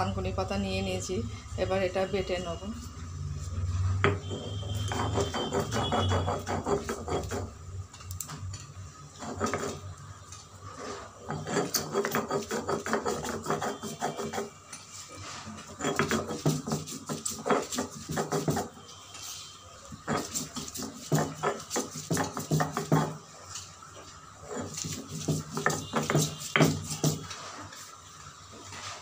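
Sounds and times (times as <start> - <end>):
stone rubbing on grinding stone: 4.0 - 7.6, 9.1 - 10.0, 10.7 - 18.8, 19.9 - 23.7, 24.4 - 27.7.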